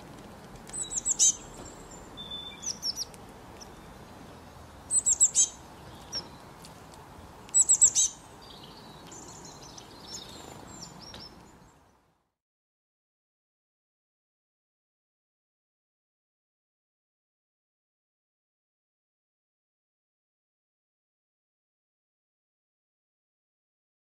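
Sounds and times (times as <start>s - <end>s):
outdoor ambient hiss: 0.0s - 12.4s
songbird chirping: 0.5s - 12.4s.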